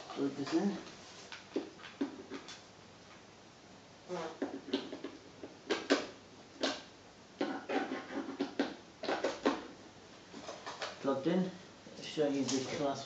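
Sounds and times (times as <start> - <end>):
scraping rustling and clattering: 7.4 - 11.1, 12.1 - 13.0.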